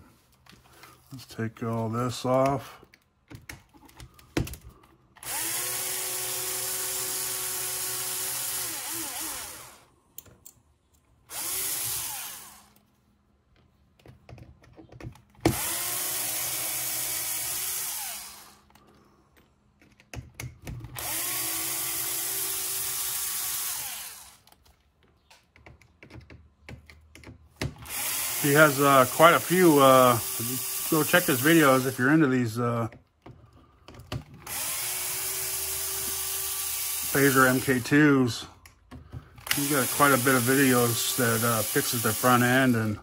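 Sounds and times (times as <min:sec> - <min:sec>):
electric drill-driver spinning: 0:05.2 - 0:09.9, 0:11.3 - 0:12.8, 0:15.4 - 0:18.8, 0:20.9 - 0:24.6, 0:27.7 - 0:32.3, 0:34.3 - 0:38.4, 0:39.3 - 0:43.0.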